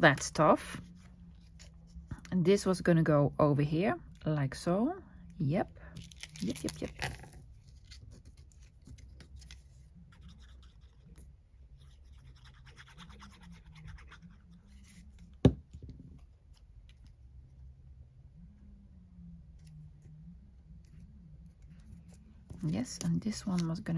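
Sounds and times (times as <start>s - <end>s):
paper scratching and rubbing: 6.8s - 15.3s.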